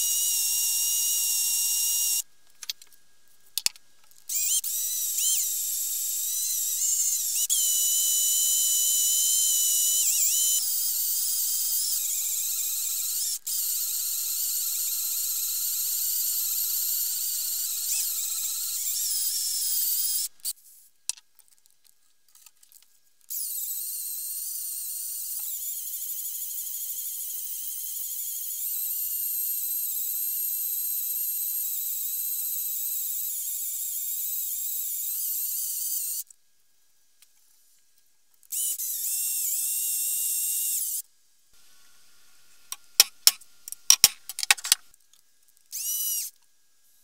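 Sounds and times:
power drill whining into steel: 0:00.0 - 0:02.2, 0:04.3 - 0:20.6.

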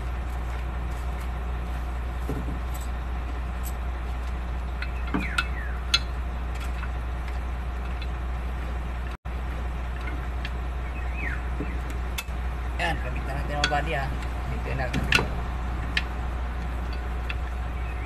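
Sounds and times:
low engine rumble: 0:00.0 - 0:18.0
metal clinks: 0:02.5 - 0:03.9.

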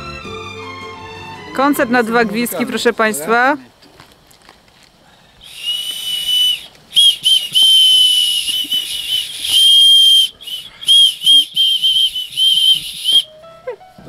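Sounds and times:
whistle blasts: 0:05.4 - 0:13.3.

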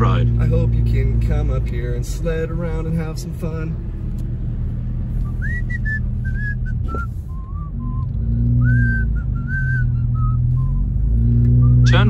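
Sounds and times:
car engine and tyres rumbling: 0:00.0 - 0:12.0
person whistling a slow tune: 0:05.2 - 0:11.9.

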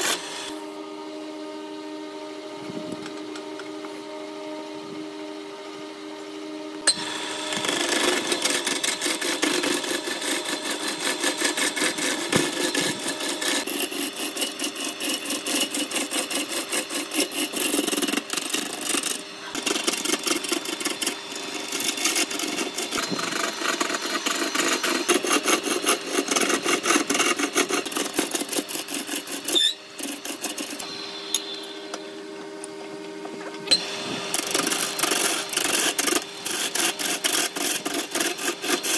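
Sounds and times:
turning tool scraping wood: 0:00.0 - 0:00.6, 0:06.8 - 0:32.0, 0:33.6 - 0:38.9
lathe motor humming: 0:00.0 - 0:38.9.

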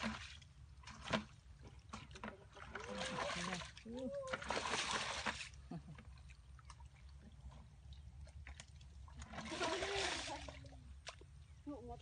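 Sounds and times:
water splash: 0:00.0 - 0:05.6, 0:08.4 - 0:11.2
hands sloshing through muddy water: 0:00.0 - 0:11.4.

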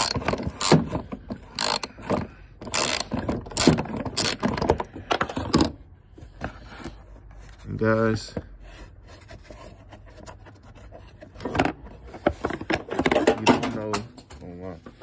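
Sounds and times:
hand ratchet clicking: 0:00.0 - 0:00.9, 0:01.5 - 0:04.7.

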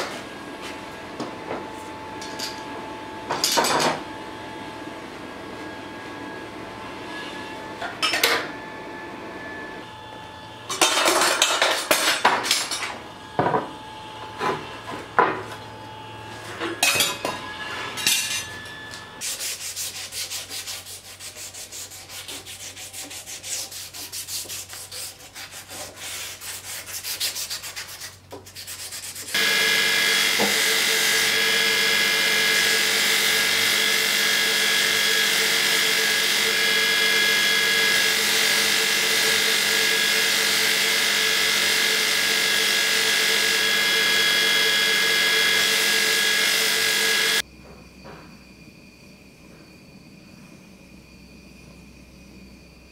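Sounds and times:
hand sanding steel blade: 0:19.2 - 0:29.9
belt grinder whining: 0:29.3 - 0:47.4.

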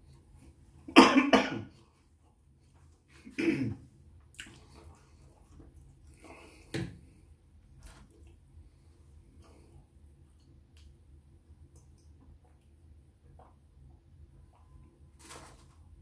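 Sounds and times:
man coughing: 0:00.9 - 0:01.7, 0:03.3 - 0:03.8.

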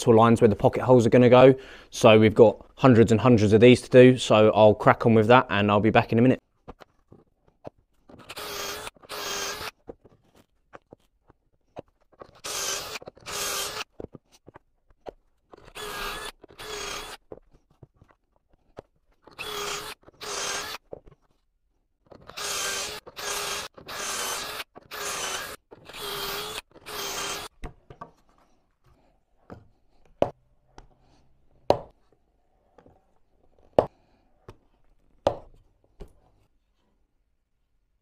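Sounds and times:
cordless drill bursts: 0:08.2 - 0:09.7, 0:12.3 - 0:13.9, 0:15.7 - 0:17.2, 0:19.3 - 0:20.8, 0:22.2 - 0:27.5.

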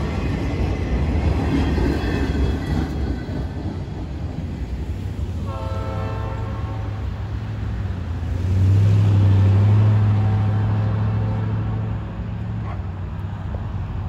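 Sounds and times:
freight train wheels rumbling: 0:00.0 - 0:14.0
locomotive horn: 0:05.4 - 0:07.3, 0:10.0 - 0:12.1.

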